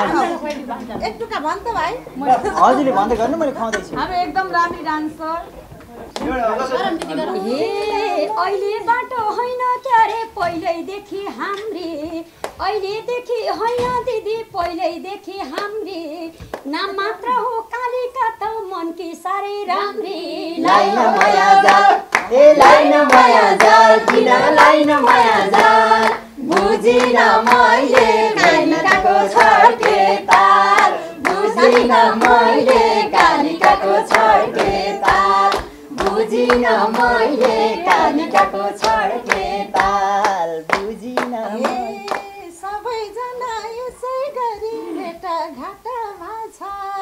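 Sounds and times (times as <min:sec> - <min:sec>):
person singing folk song: 0:19.0 - 0:47.0
hand clapping: 0:20.6 - 0:42.4.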